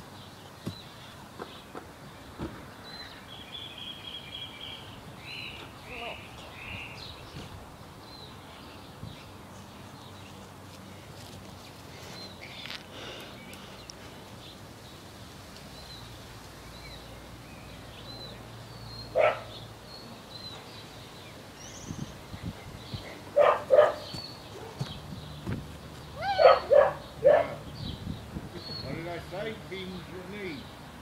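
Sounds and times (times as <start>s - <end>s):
dog barking: 19.1s - 19.5s, 23.4s - 24.8s, 26.4s - 27.6s.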